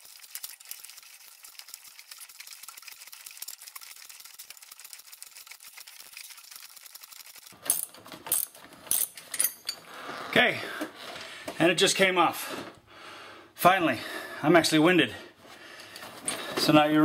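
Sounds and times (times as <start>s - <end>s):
wrench ticking and creaking: 7.6s - 9.9s.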